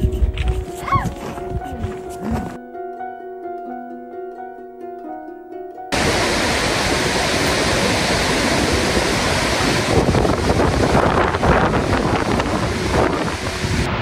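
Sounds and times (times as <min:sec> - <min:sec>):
wind buffeting microphone: 0:00.0 - 0:02.6, 0:06.0 - 0:14.0
waterfall roaring: 0:05.9 - 0:14.0.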